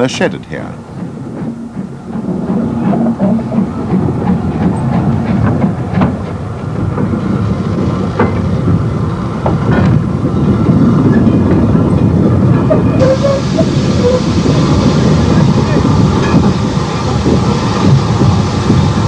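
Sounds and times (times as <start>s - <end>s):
steam locomotive rumbling: 0.0s - 19.0s
clanks and clicks: 0.4s - 8.6s.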